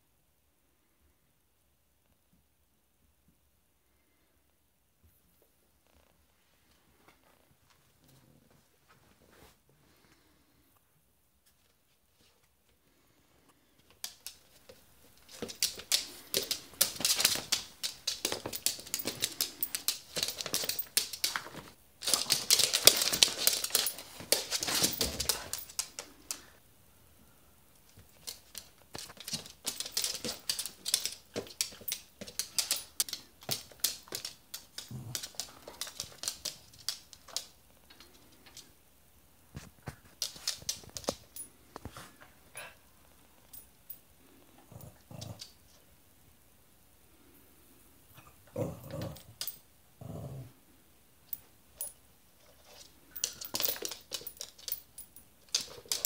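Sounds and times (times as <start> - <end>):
animal claws clicking on floor: 13.8 - 26.6, 27.8 - 38.7, 39.5 - 42.0, 51.3 - 56.0.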